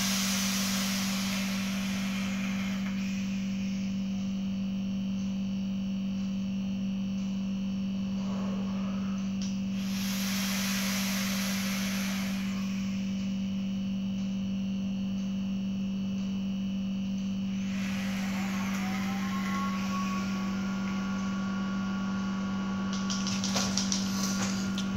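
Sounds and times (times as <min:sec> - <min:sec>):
air whistling through atomizer: 0:00.0 - 0:04.2, 0:08.2 - 0:13.5, 0:17.5 - 0:21.6
steady low hum: 0:00.0 - 0:24.9.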